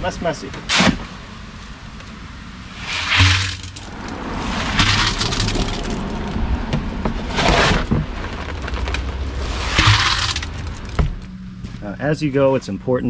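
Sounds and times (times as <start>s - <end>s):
shovel scraping wet concrete: 2.8s - 6.2s, 7.2s - 11.0s.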